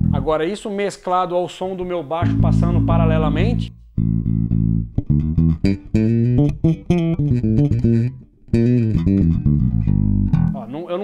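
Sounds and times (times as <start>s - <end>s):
slap electric bass: 0.0s - 0.4s, 2.2s - 10.6s.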